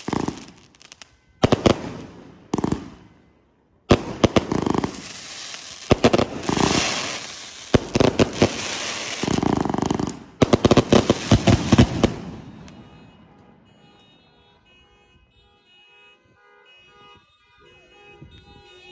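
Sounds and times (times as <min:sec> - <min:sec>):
fireworks bangs and crackling: 0:00.0 - 0:13.6.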